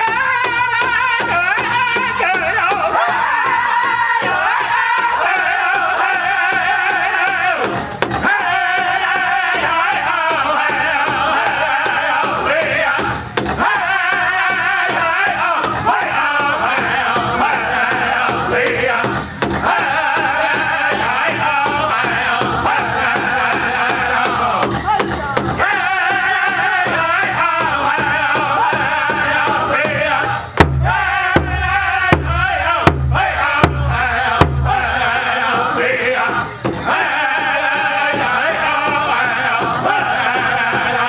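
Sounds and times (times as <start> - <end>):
group singing high-pitched song: 0.0 - 41.0
large hide drum beating: 0.0 - 41.0.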